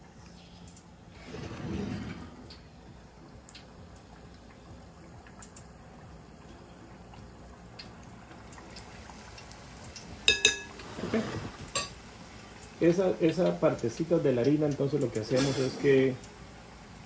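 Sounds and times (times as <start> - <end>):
hot oil sizzling and bubbling: 0.0 - 1.8, 2.4 - 17.0.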